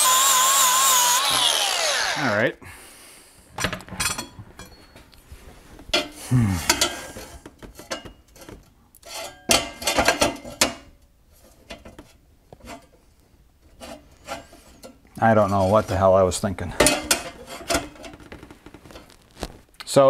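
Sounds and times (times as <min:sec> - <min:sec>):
metal parts clanking and scraping: 0:16.7 - 0:18.2.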